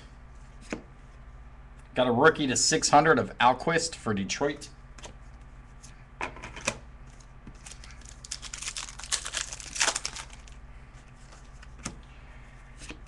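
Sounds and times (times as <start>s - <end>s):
wrapper crinkling: 7.6s - 10.6s.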